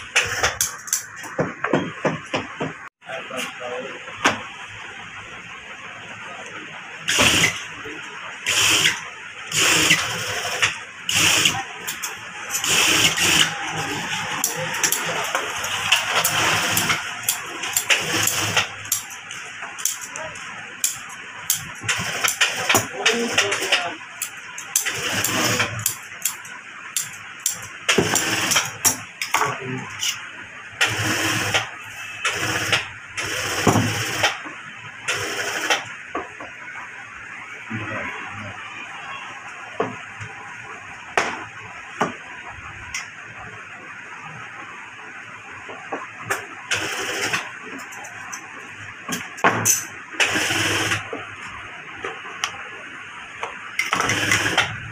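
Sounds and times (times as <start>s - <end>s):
sewing machine stitching: 8.4s - 19.1s, 21.8s - 23.9s, 24.7s - 25.9s, 30.8s - 34.4s, 46.7s - 47.4s, 50.2s - 51.0s, 53.8s - 54.8s.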